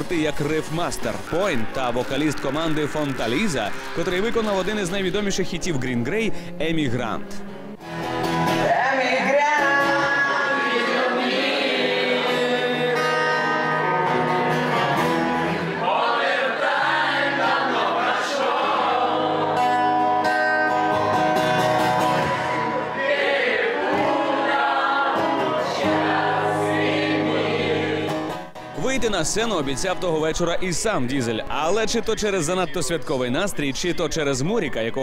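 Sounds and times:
acoustic guitar: 0.0s - 32.8s
man singing: 8.6s - 10.7s.

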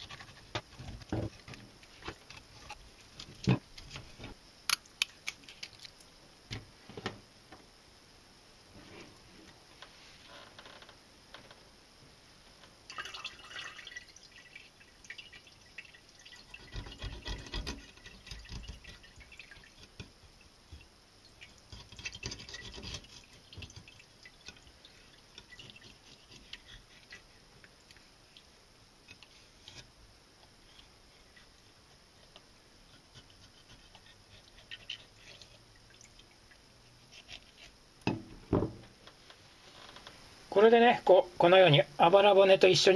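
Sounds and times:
knife scraping fish bones: 21.7s - 23.9s, 25.4s - 27.4s, 32.9s - 35.6s, 37.1s - 37.8s.

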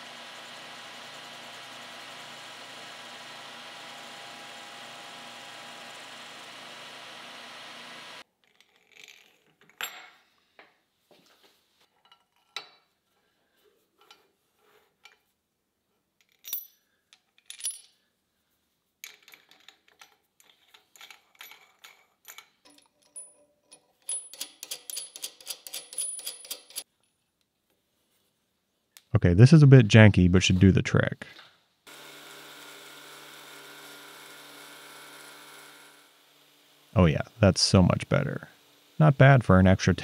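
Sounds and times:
machine running: 0.0s - 8.2s.

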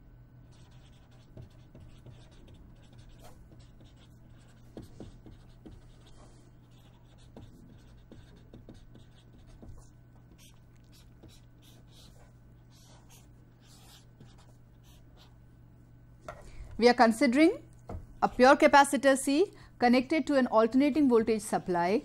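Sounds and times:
low steady hum: 0.0s - 22.0s
marker pen writing on paper: 0.5s - 15.3s.

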